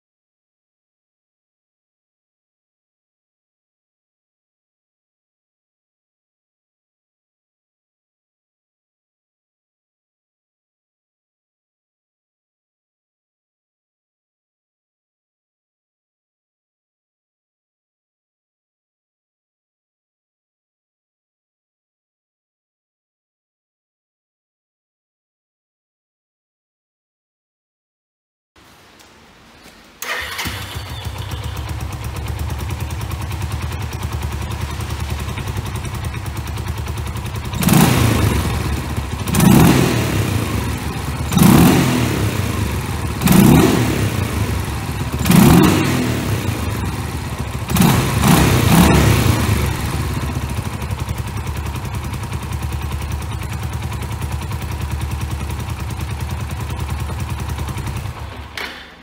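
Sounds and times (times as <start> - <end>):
motorcycle engine idling and revving: 30.0 - 59.0.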